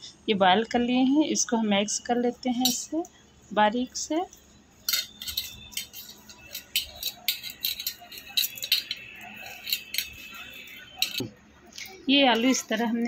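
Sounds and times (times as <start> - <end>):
bangles clinking: 4.3 - 13.0.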